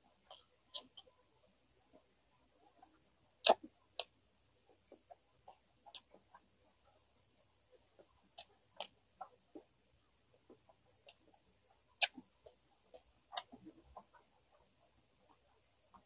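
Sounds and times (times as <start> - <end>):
chewing clicks and smacks: 8.0 - 9.6, 12.0 - 14.3.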